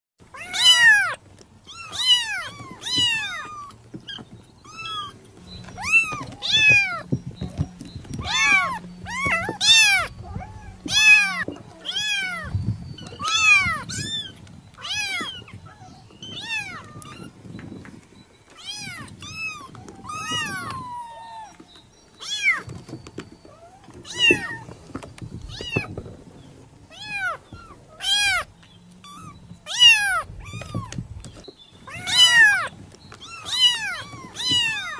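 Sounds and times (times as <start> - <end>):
kittens meowing: 0.3 - 17.5, 18.5 - 22.8, 23.4 - 26.0, 26.8 - 34.9.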